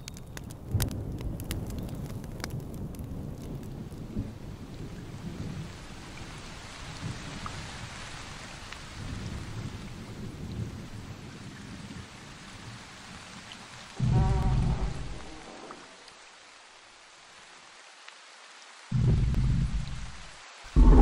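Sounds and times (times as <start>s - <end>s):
rain hissing: 0.0s - 21.0s
low rolling thunder: 14.0s - 15.8s, 20.7s - 21.0s.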